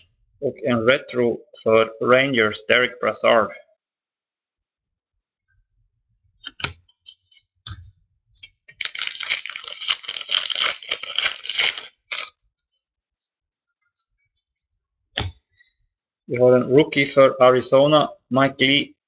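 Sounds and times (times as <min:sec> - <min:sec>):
wrapper crinkling and tearing: 0:08.7 - 0:12.4.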